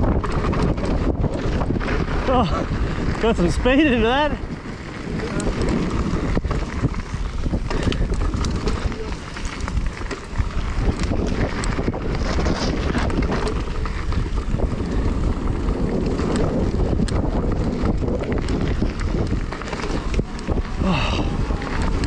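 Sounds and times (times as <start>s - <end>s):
bike tyres rolling on dirt: 0.0s - 22.0s
wind buffeting microphone: 0.0s - 22.0s
bike knocks and clicks: 4.5s - 20.7s.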